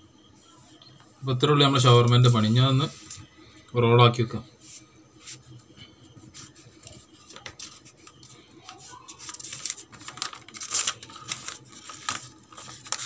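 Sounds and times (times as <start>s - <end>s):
wrapping paper crinkling: 6.5s - 13.0s.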